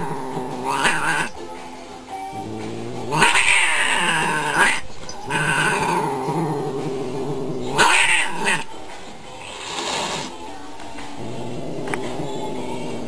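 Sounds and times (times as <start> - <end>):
cats growling and yowling: 0.0 - 1.4, 2.3 - 8.7, 11.0 - 13.0.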